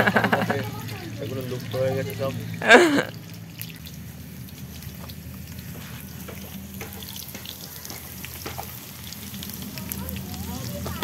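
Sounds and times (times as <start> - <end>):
potatoes sizzling in hot oil: 0.0 - 11.0
small oil pops: 3.3 - 10.2.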